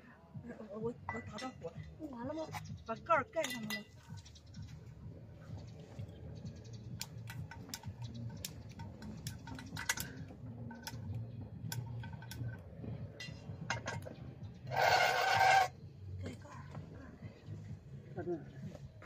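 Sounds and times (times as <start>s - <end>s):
cookware clinking: 3.4s - 4.0s.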